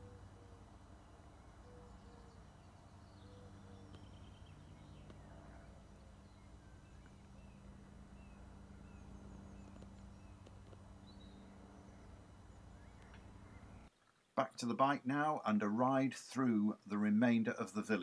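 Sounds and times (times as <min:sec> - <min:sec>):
low steady hum: 0:00.0 - 0:13.9
small birds chirping: 0:00.0 - 0:14.3.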